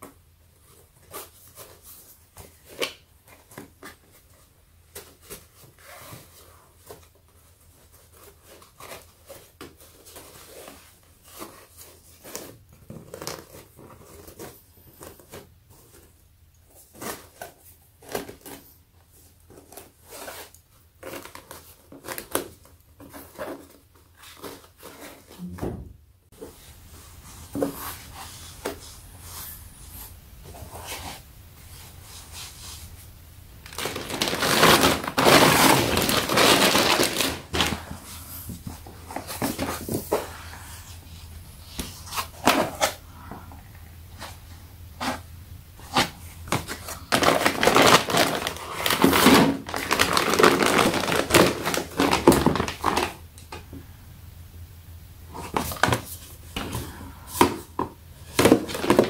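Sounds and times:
packaging rustling and crinkling: 0.5s - 25.5s, 33.6s - 40.4s, 45.8s - 53.2s, 57.4s - 59.0s.

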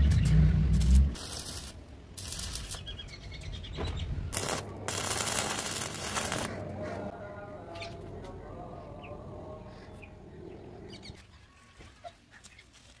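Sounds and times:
arc welding crackling hiss: 0.7s - 2.9s, 4.3s - 6.5s.

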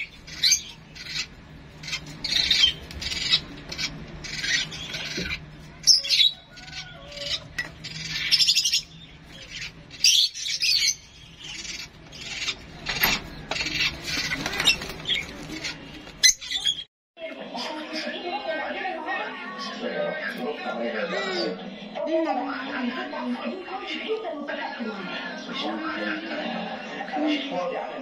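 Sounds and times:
sparrow chirping: 0.0s - 16.8s.

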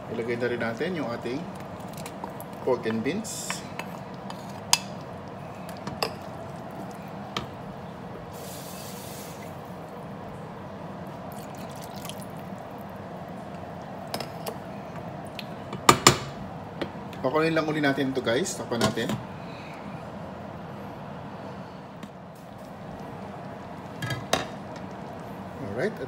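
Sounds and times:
broth bubbling in a pot: 0.1s - 14.2s.

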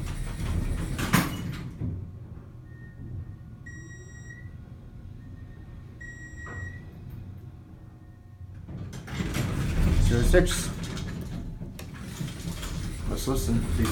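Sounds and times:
elevator doors sliding shut: 0.0s - 3.8s, 8.4s - 13.9s
elevator low hum: 0.0s - 13.9s
high-pitched elevator whine: 2.6s - 8.5s.

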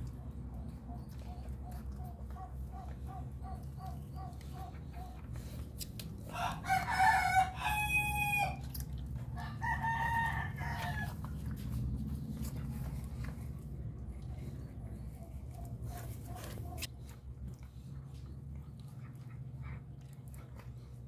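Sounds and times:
rooster crowing: 6.3s - 8.6s, 9.4s - 11.4s.

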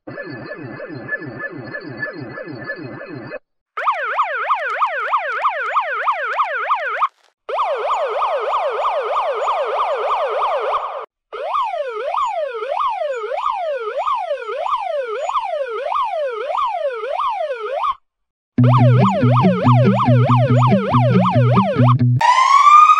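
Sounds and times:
toy police siren wailing: 3.8s - 7.0s, 7.6s - 18.0s, 18.6s - 22.9s.

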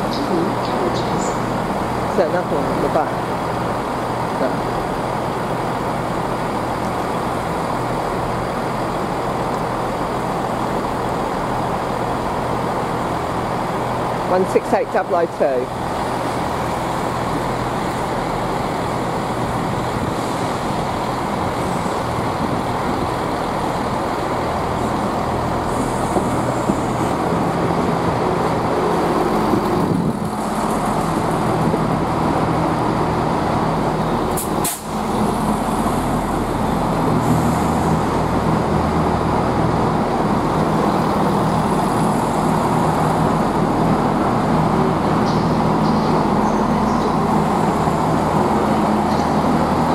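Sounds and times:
diesel train engines idling: 0.0s - 49.9s
sharp hiss: 34.3s - 35.0s.

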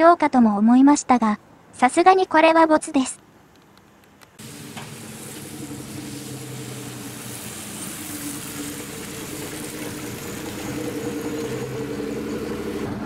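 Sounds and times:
tyre hiss: 4.4s - 11.8s
bus engine humming: 4.4s - 13.0s.

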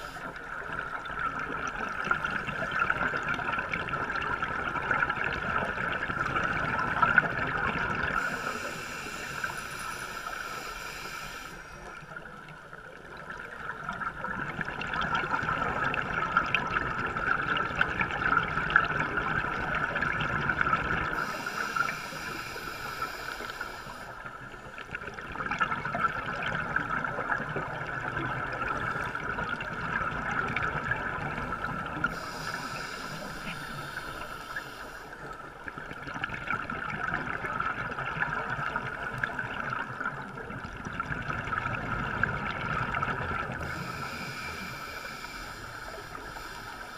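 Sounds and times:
diver regulator breathing: 0.0s - 0.5s, 8.1s - 12.2s, 21.1s - 24.9s, 31.6s - 35.6s, 43.5s - 46.9s.

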